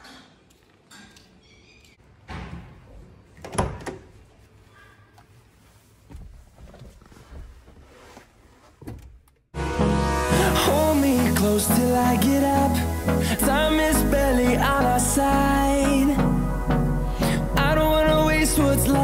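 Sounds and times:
rustling and knocks: 0:05.2 - 0:09.4
music: 0:09.6 - 0:19.0.

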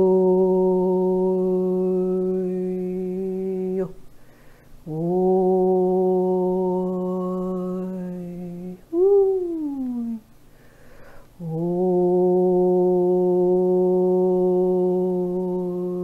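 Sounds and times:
woman humming long notes: 0:00.0 - 0:04.0, 0:04.8 - 0:10.3, 0:11.4 - 0:16.0.

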